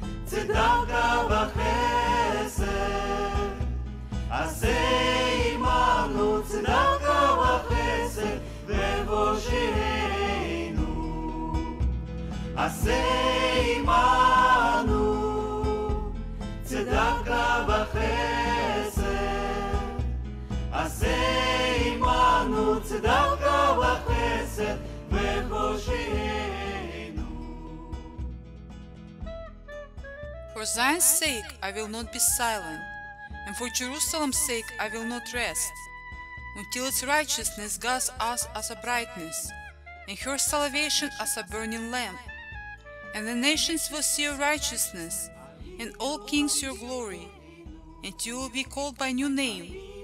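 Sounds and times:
low musical accompaniment: 0.0 - 49.9
voices singing: 0.2 - 3.7, 4.3 - 11.9, 12.6 - 28.2, 44.6 - 48.4, 49.2 - 50.0.

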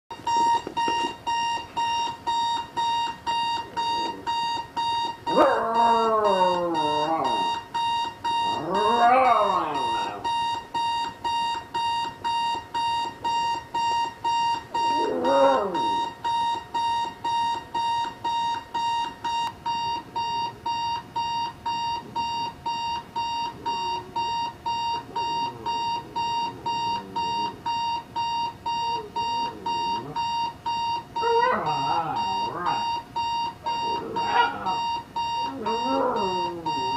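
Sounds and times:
alarm clock beeping: 0.1 - 36.9
dog howling: 5.3 - 7.6, 8.5 - 10.2, 14.8 - 16.0, 31.2 - 32.9, 33.8 - 34.9, 35.5 - 36.9.

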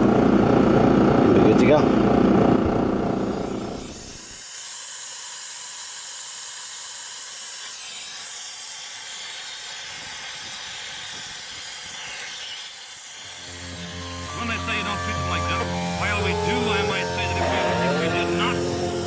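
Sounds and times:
pressurized gas hissing: 7.6 - 14.9.

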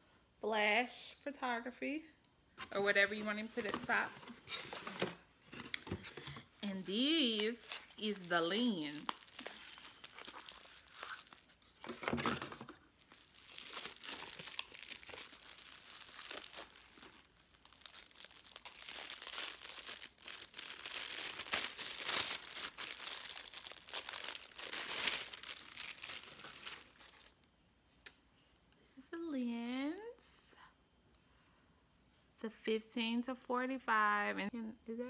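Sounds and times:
plastic wrapping crinkling: 3.0 - 27.5.

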